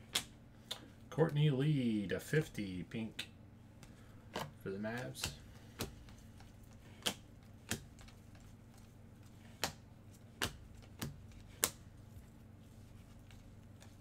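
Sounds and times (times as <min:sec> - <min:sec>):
cards snapping against stack: 0:00.0 - 0:00.8, 0:03.8 - 0:06.2, 0:06.9 - 0:08.4, 0:09.4 - 0:09.8, 0:10.4 - 0:11.8.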